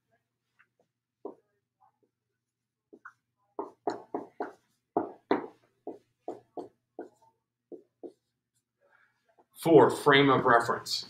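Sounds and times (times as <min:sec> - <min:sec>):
marker scratching on whiteboard: 0:02.9 - 0:08.7.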